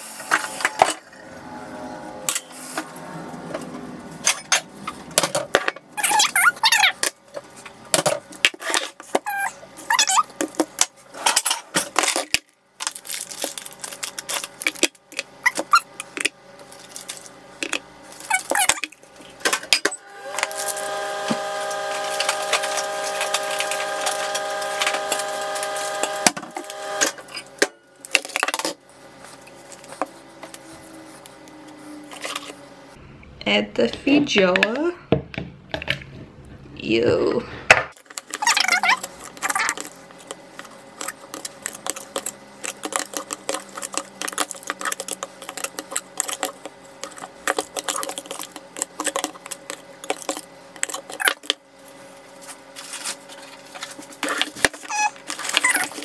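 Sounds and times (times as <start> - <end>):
hum of held tones: 0.2 - 4.7
kitchen utensils and dishes clattering: 4.2 - 6.3.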